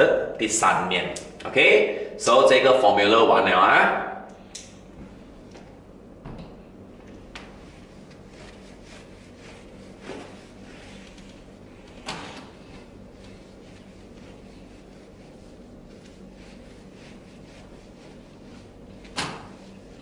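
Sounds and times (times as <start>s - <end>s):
eraser wiping whiteboard: 7.4s - 20.0s.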